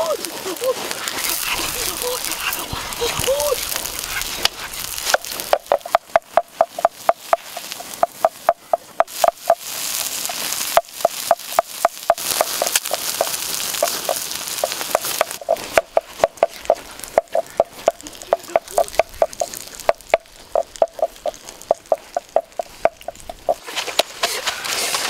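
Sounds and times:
offal sizzling on hot stone: 0.0 - 25.0
wooden pestle pounding in mortar: 3.6 - 9.6, 14.9 - 23.6.

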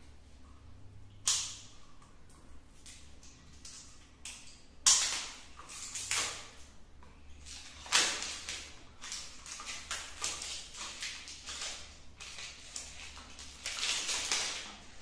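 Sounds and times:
tape tearing and crinkling: 7.5 - 15.0.

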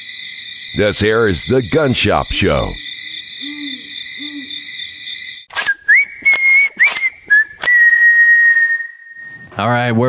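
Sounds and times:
low hoots: 0.8 - 5.1
sharp cracks: 5.5 - 7.8
whistling: 5.5 - 9.9.

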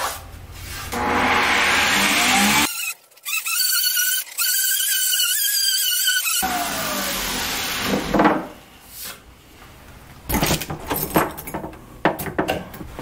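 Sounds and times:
orbital sander running: 0.9 - 2.7.

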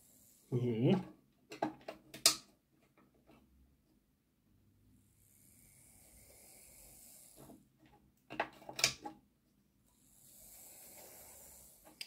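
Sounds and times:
clicks and knocks: 1.5 - 3.5.

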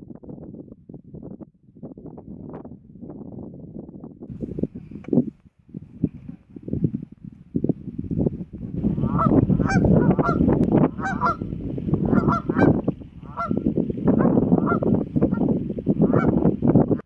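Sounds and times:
geese honking: 9.0 - 11.4, 12.0 - 13.6, 14.2 - 15.4.

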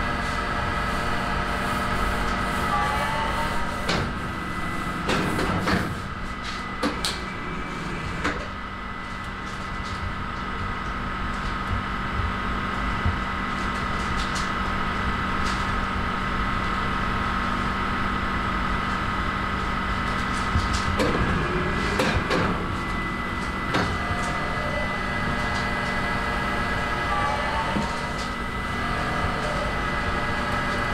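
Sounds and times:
oven mechanical hum: 0.0 - 30.9.

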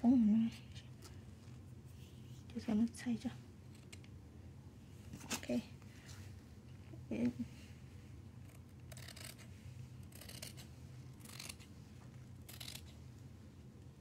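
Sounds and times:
low steady hum: 0.0 - 14.0
scissors snipping cloth: 8.5 - 11.7, 12.4 - 12.9.

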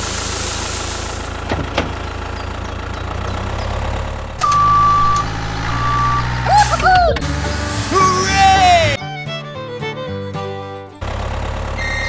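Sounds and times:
tractor engine idling: 0.0 - 10.0, 10.6 - 12.0
reversing beeper: 4.4 - 6.8, 11.8 - 12.0.

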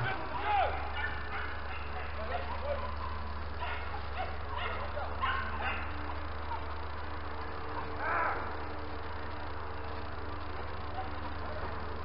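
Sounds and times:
dogs barking: 0.0 - 6.9, 10.9 - 11.4
dog baying: 0.9 - 5.9.

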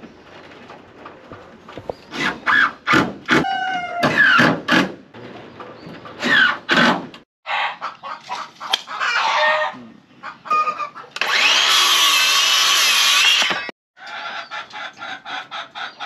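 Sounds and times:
chickens clucking: 7.5 - 11.2, 14.0 - 16.0
circular saw cutting wood: 11.2 - 13.7.

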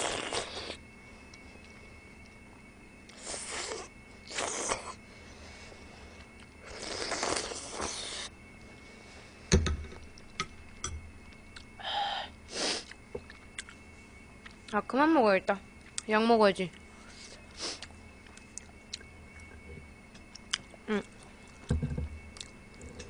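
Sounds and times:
person slurping broth: 6.7 - 8.3
knock on table: 21.7 - 22.1.

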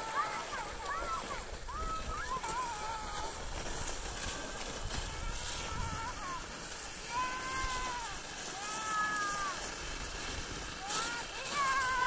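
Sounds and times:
child calling out: 0.0 - 3.4, 5.0 - 9.6, 10.9 - 12.0.

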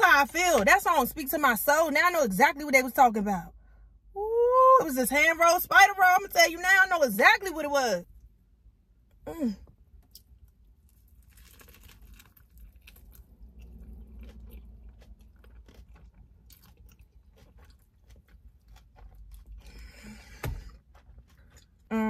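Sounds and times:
person chewing with crisp crunches: 9.6 - 22.0.

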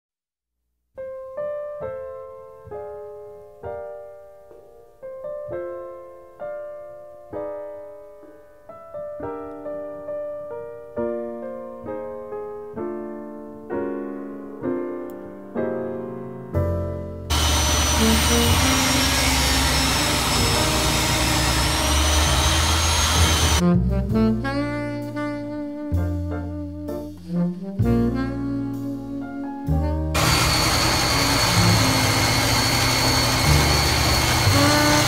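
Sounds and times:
slow piano melody: 1.0 - 35.0.

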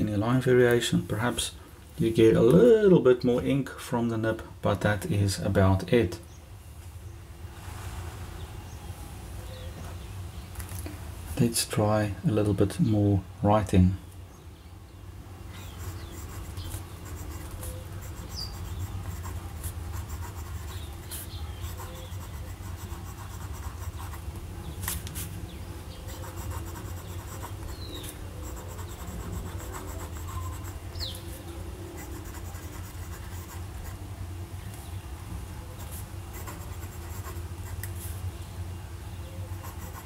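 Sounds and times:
steady low hum: 0.0 - 40.0
pen nib scratching on paper: 15.7 - 24.2, 26.1 - 31.1, 32.0 - 34.0, 35.8 - 37.9, 39.5 - 40.0.

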